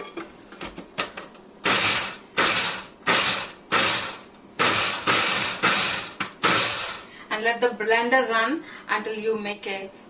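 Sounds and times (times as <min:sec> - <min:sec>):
blender pulsing: 0:01.6 - 0:07.1.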